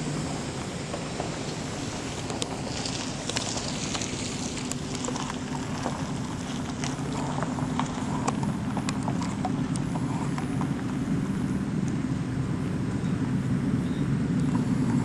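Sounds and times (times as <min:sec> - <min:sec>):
vehicle engine humming: 0:00.0 - 0:15.0
cow hooves clopping on pavement: 0:00.2 - 0:12.1.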